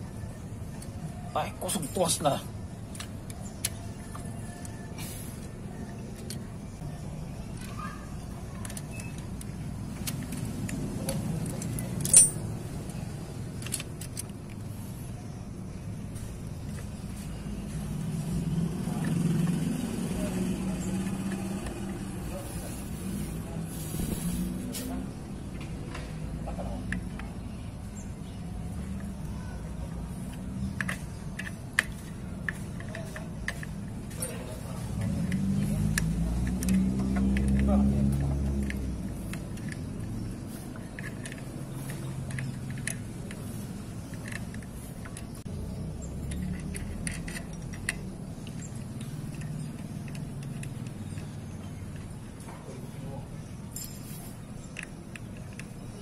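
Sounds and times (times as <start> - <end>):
metallic clicks of a spanner: 6.1 - 6.5, 30.2 - 52.5.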